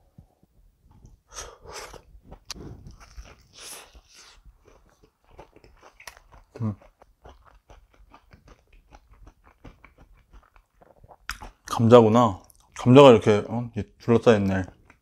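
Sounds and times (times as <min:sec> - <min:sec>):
crunching and chewing: 0:01.8 - 0:12.9.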